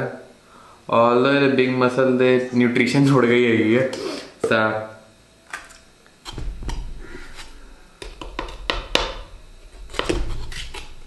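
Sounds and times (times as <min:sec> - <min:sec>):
dull handling bumps: 0:06.3 - 0:10.6.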